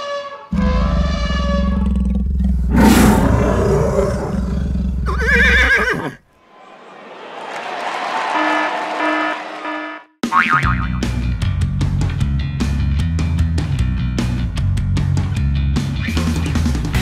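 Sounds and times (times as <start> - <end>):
deep animal-like roar: 0.5 - 6.1
heavy low rumble: 0.6 - 5.2.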